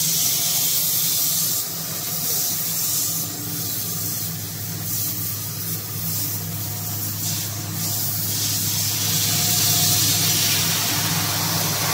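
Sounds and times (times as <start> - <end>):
hiss: 0.0 - 11.9
machine hum: 0.0 - 11.9.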